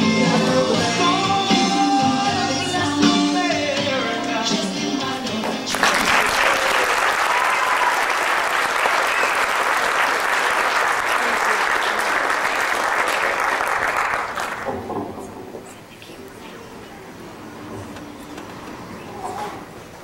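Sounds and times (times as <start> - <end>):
audience applauding: 5.6 - 14.9.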